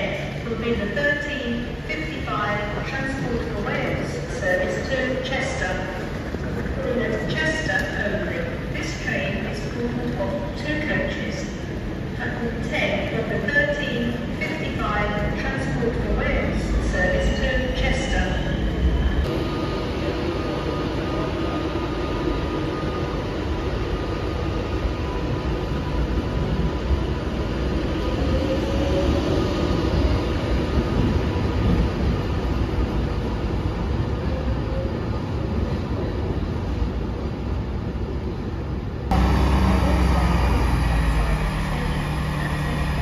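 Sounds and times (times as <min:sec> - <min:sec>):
electric train rumble and hum: 0:00.0 - 0:43.0
diesel train engine running: 0:39.1 - 0:43.0.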